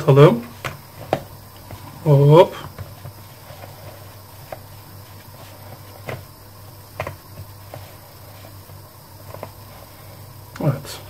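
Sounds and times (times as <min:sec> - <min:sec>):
flour rustling: 0:00.0 - 0:11.0
steady low hum: 0:00.0 - 0:11.0.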